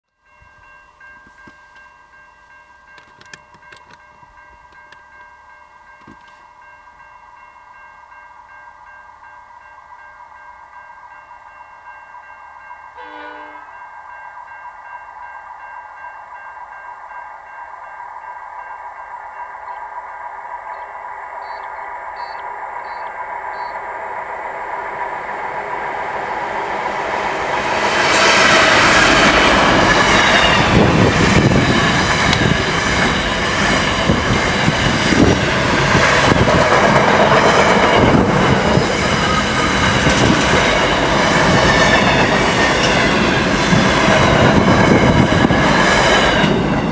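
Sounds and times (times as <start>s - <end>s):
diesel locomotive passing: 0.2s - 46.9s
train wheels clattering over rail joints: 28.0s - 46.9s.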